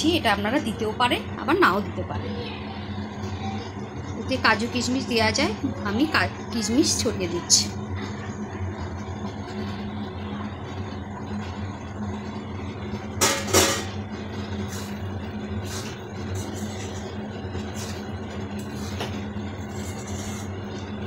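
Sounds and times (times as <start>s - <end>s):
low machine hum: 0.0s - 21.0s
spatula stirring taps and scrapes: 15.6s - 20.9s.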